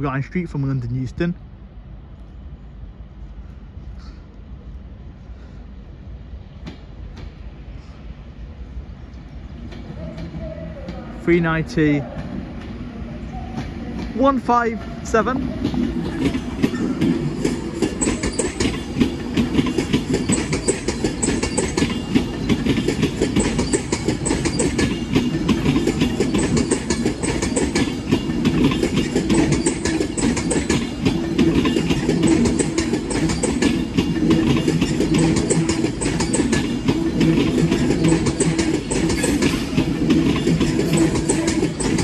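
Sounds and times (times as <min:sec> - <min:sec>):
train low rumble: 0:00.0 - 0:42.0
train wheels clicking over rail joints: 0:09.2 - 0:11.2, 0:13.5 - 0:42.0.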